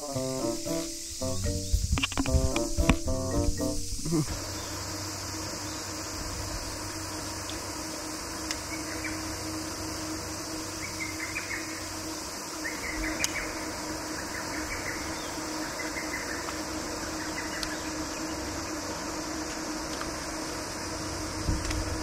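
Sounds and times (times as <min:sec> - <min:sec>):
faint chirps: 0:00.0 - 0:18.9
electric trolling motor hum: 0:00.0 - 0:22.0
outdoor background noise: 0:00.0 - 0:22.0
sharp clicks: 0:01.2 - 0:03.6.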